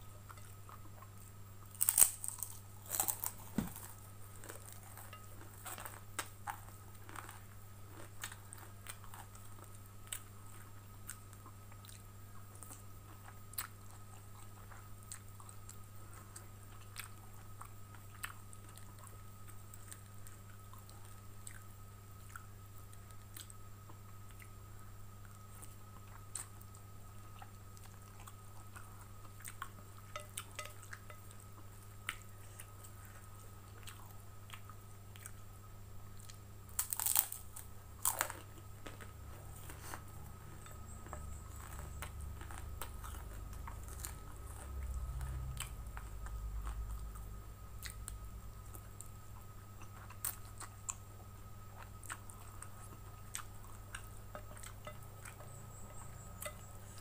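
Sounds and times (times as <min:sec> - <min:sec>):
person chewing noodles: 0:00.0 - 0:24.6, 0:25.2 - 0:35.4, 0:36.1 - 0:57.0
crunchy bites: 0:01.6 - 0:09.5, 0:36.2 - 0:47.2.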